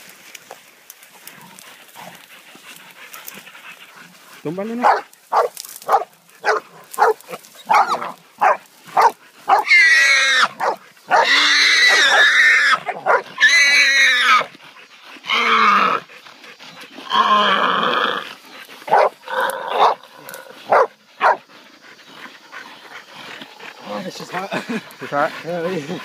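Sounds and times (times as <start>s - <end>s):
hog squealing: 9.5s - 14.5s, 15.2s - 16.0s.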